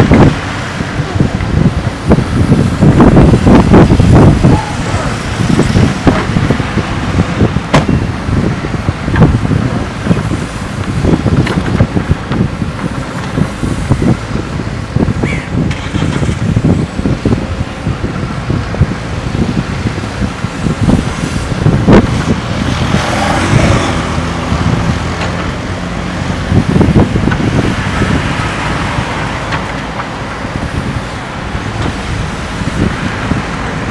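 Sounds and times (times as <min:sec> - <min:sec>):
diesel engine under load: 0:00.0 - 0:33.9
backhoe digging soil: 0:08.8 - 0:17.4.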